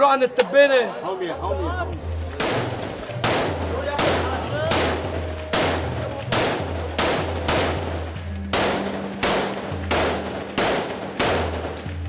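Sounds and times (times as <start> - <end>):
rifle shots echoing: 2.4 - 12.0.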